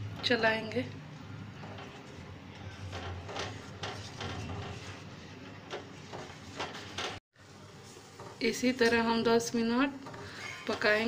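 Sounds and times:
metal ladle scraping pan: 9.9s - 11.0s.

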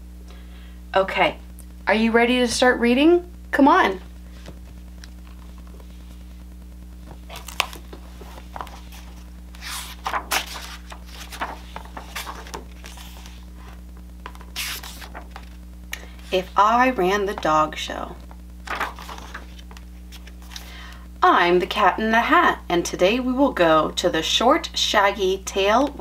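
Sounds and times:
low hum: 0.0s - 21.8s
book pages turning: 4.3s - 6.2s, 7.0s - 17.6s, 18.2s - 20.8s.

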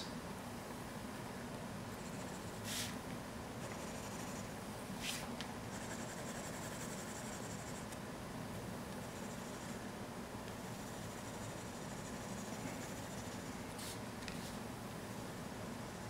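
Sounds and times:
low steady hum: 0.0s - 16.0s
pencil scratching on paper: 3.6s - 4.4s, 5.1s - 8.0s, 9.0s - 9.8s, 10.7s - 14.0s.

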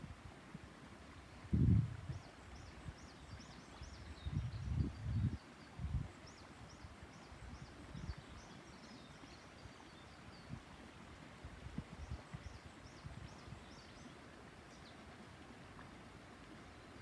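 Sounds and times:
small birds chirping: 2.1s - 10.6s, 12.0s - 15.1s.

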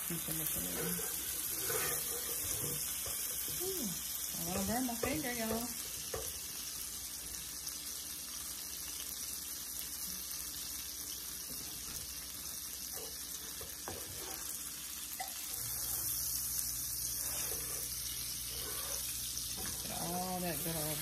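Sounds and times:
butter sizzling in frying pan: 0.0s - 21.0s
spatula tapping and scraping pan: 0.6s - 3.6s, 4.4s - 6.5s, 12.9s - 14.5s, 17.2s - 20.0s.

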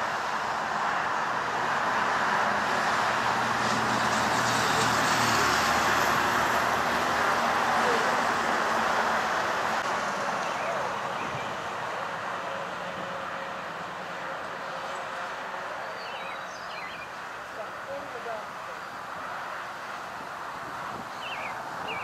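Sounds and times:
road traffic noise: 0.0s - 22.0s
vehicle engine passing: 0.1s - 22.0s.

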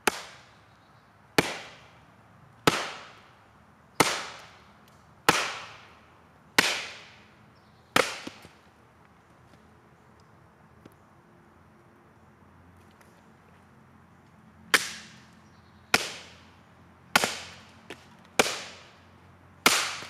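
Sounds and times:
machete chopping into a log: 2.6s - 3.2s, 5.3s - 5.8s, 6.6s - 7.2s, 8.0s - 8.6s, 14.7s - 15.2s, 15.9s - 16.4s, 17.2s - 18.8s, 19.6s - 20.0s.

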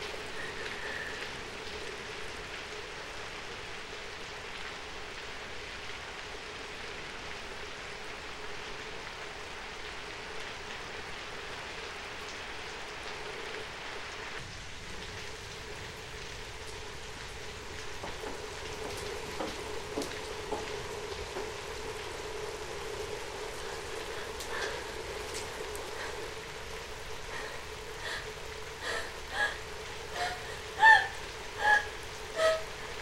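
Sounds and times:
steady rain falling: 0.0s - 33.0s.

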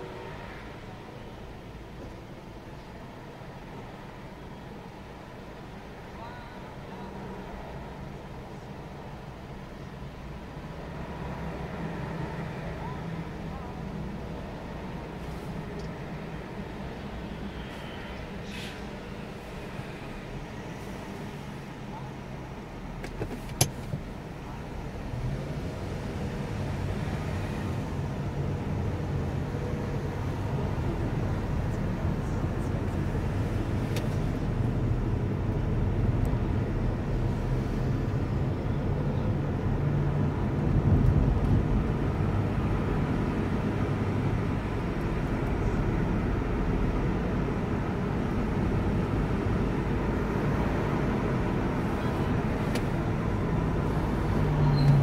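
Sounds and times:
car engine and road rumble: 0.0s - 55.0s.

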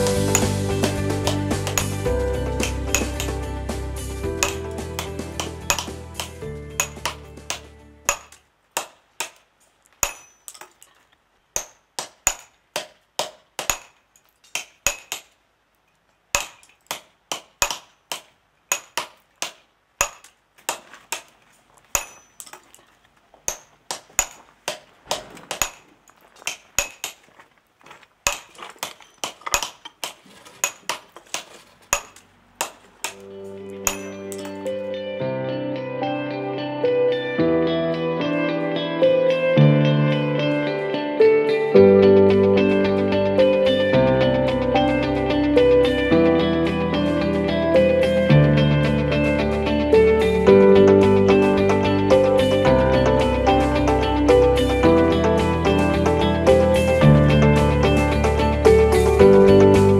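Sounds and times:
background music: 0.0s - 8.4s, 33.1s - 59.9s
hammer striking stone: 0.2s - 2.0s, 4.4s - 9.4s, 10.0s - 10.8s, 11.6s - 15.4s, 16.3s - 21.3s, 21.9s - 22.7s, 23.5s - 27.3s, 28.2s - 33.2s, 33.8s - 34.6s.

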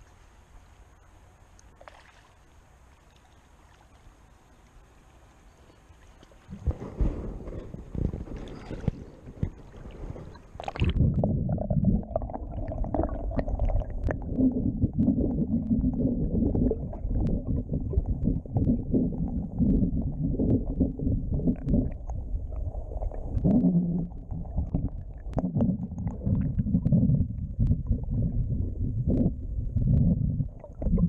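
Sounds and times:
river water flowing: 0.0s - 6.5s
small underwater clicks and knocks: 5.6s - 11.3s, 13.6s - 31.0s
muffled underwater current rumble: 6.3s - 31.0s.

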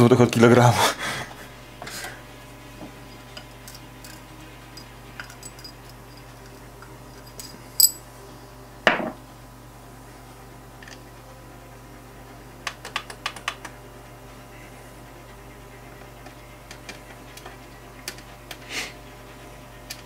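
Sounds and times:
glass clinking: 4.8s - 5.8s, 7.2s - 8.0s
clicks of small parts handled: 7.2s - 8.0s.

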